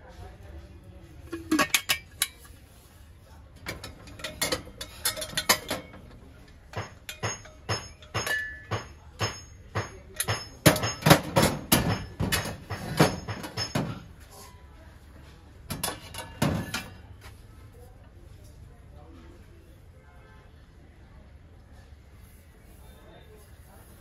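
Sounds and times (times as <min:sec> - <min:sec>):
brass kitchenware clinking: 0:01.3 - 0:02.7, 0:03.6 - 0:14.2, 0:15.7 - 0:17.1.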